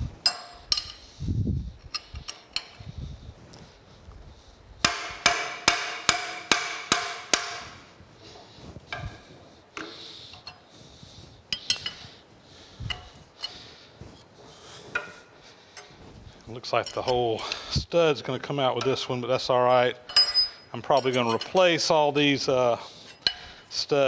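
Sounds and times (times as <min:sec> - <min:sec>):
hammer striking metal wrench: 0:00.2 - 0:01.0, 0:04.8 - 0:07.8, 0:11.5 - 0:12.0, 0:19.7 - 0:21.6
wrench clinking on nut: 0:00.2 - 0:01.0, 0:01.8 - 0:02.9, 0:11.5 - 0:12.0, 0:19.8 - 0:21.7.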